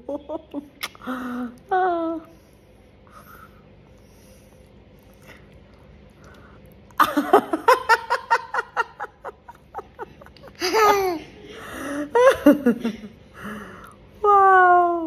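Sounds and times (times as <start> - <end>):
woman and toddler laughing: 7.0 - 13.2.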